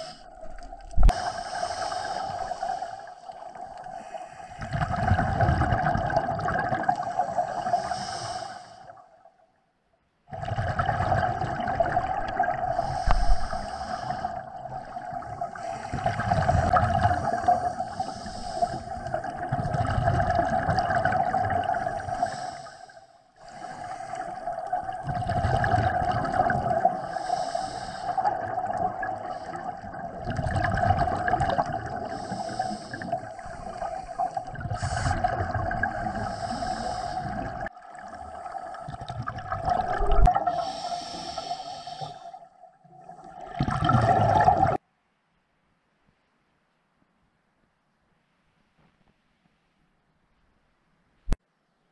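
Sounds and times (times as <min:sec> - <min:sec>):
exhaled air bubbling underwater: 0:00.0 - 0:09.4, 0:10.3 - 0:44.8
steady hiss: 0:40.6 - 0:42.3.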